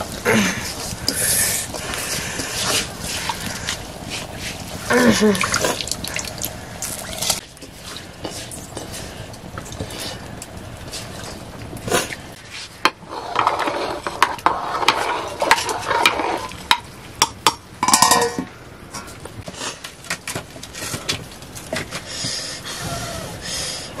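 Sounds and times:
metal ladle scraping a pot: 12.5s - 16.7s.

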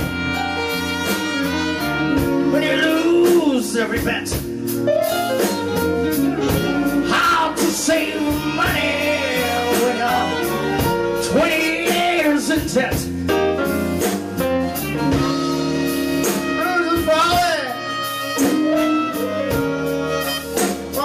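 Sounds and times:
keyboards: 0.0s - 21.0s
steady drum beat: 0.0s - 21.0s
person singing: 2.4s - 4.0s, 6.5s - 13.1s.

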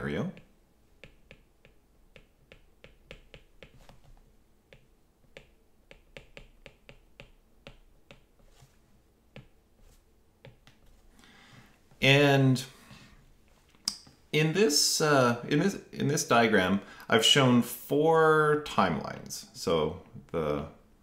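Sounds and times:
stylus tapping on tablet screen: 0.3s - 8.6s, 9.3s - 11.0s.

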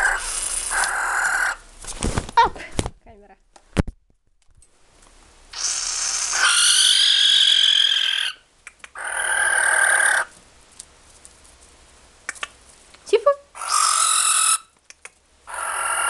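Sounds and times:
barn owl hissing calls: 0.0s - 1.7s, 5.5s - 10.3s, 13.5s - 14.8s, 15.4s - 16.0s.

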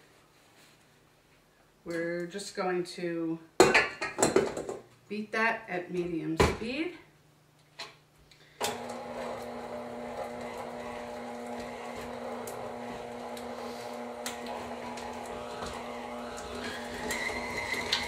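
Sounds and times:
stand mixer running: 8.6s - 18.0s.

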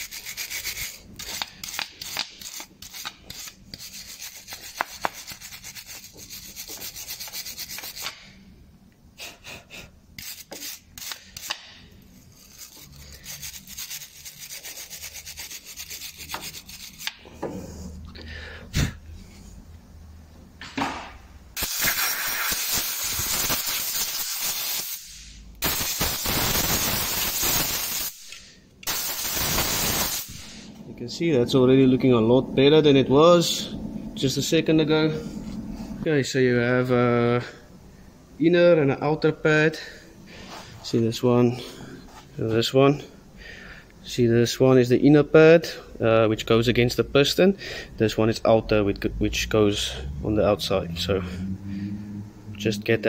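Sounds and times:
wire brush scrubbing metal: 0.0s - 8.2s, 10.2s - 11.6s, 12.2s - 17.2s.

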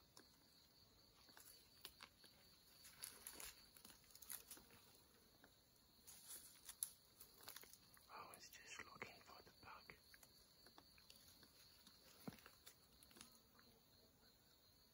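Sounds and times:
dry leaves crackling under crawling: 1.3s - 5.0s, 6.0s - 8.4s, 11.0s - 13.4s.

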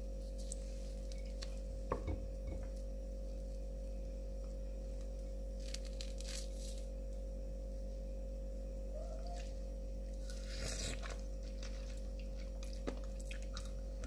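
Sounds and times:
steady low hum: 0.0s - 14.0s
wet tearing of peel: 5.6s - 6.8s, 10.3s - 12.0s.

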